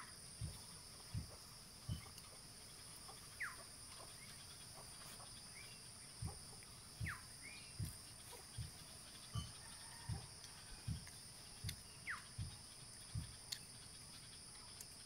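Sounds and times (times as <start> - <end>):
soft low thumps: 0.0 - 14.0
insects buzzing: 0.0 - 15.0
bird whistled call: 7.0 - 7.8.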